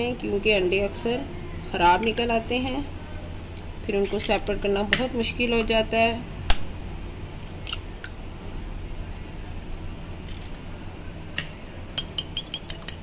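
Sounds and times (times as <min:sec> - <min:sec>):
spoon beating eggs in glass bowl: 0:12.0 - 0:13.0.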